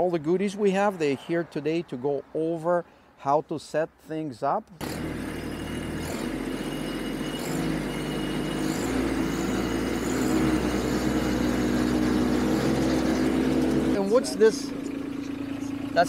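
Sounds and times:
tractor diesel engine running: 4.8s - 16.0s.

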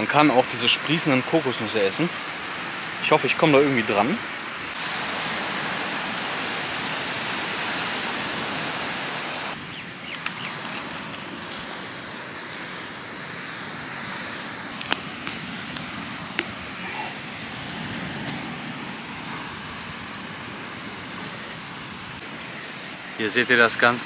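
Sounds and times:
sea surf: 0.0s - 24.0s
wind: 0.0s - 24.0s
hands digging in dry sand: 14.7s - 18.6s.

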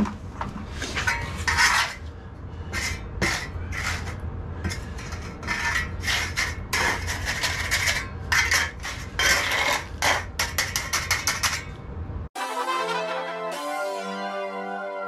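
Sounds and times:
steady low hum: 0.0s - 12.3s
trowel scraping wet concrete: 0.8s - 2.0s, 2.7s - 11.7s.

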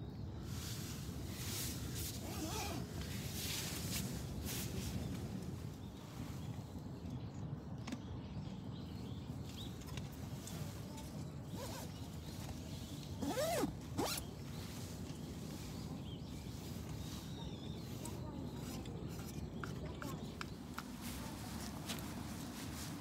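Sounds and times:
zipper pulled: 2.1s - 2.9s, 11.5s - 11.9s, 13.2s - 14.3s.

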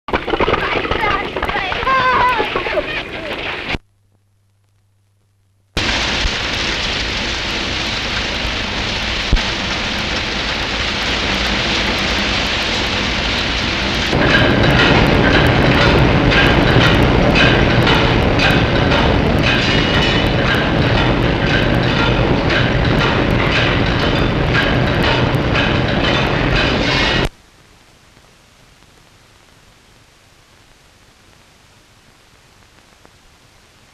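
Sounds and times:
brick-making machinery running: 0.1s - 3.8s, 5.8s - 27.3s.

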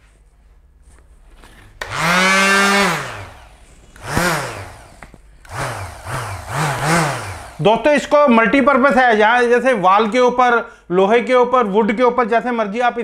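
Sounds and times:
electric sander motor whining: 1.8s - 8.0s.

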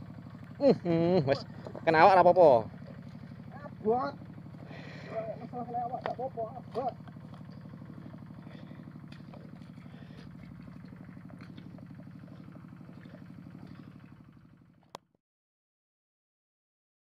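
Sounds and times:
small engine running: 0.0s - 15.1s.

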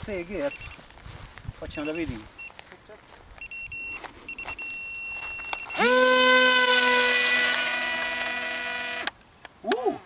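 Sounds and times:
electric motor propeller whine: 5.8s - 9.1s.

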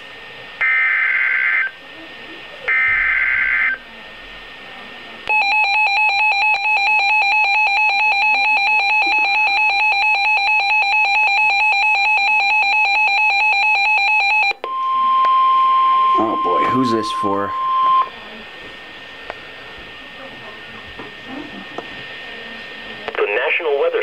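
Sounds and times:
steady warning tone: 0.5s - 19.0s
rapid two-tone alarm beeping: 2.7s - 3.8s, 5.3s - 18.2s.

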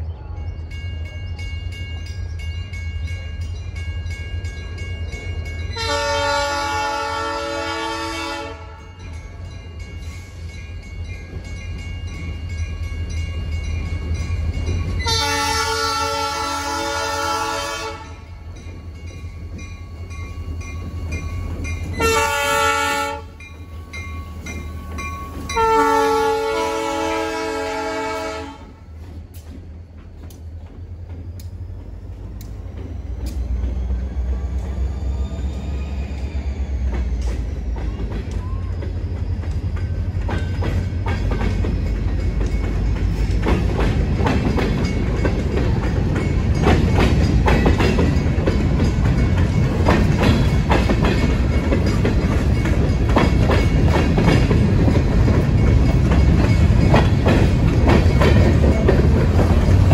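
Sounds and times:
locomotive air horn blasts: 5.8s - 8.9s, 15.0s - 18.2s, 22.0s - 23.4s, 25.5s - 28.8s.

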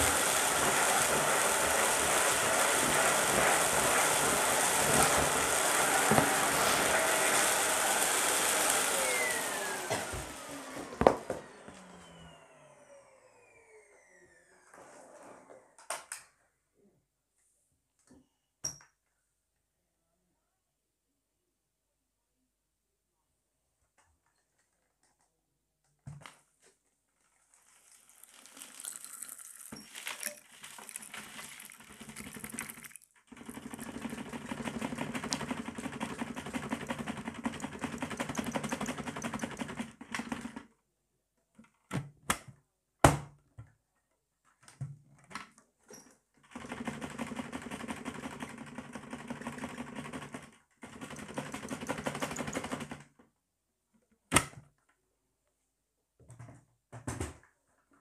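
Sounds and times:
debris rattling up vacuum hose: 0.0s - 10.4s, 27.4s - 34.3s
vacuum cleaner motor humming: 0.0s - 14.8s.

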